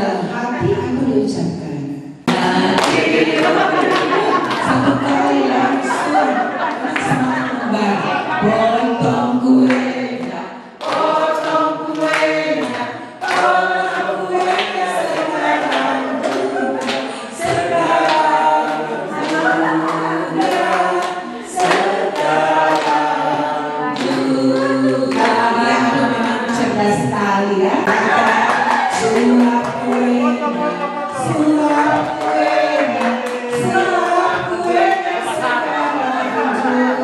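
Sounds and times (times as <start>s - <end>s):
woman singing into microphone: 0.0s - 3.0s, 4.6s - 10.6s, 23.8s - 37.0s
group singing birthday song: 0.0s - 37.0s.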